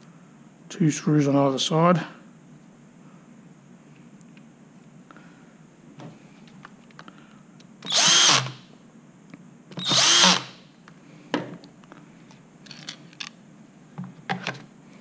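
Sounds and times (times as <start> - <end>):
cordless drill motor: 7.8 - 8.6, 9.8 - 10.6.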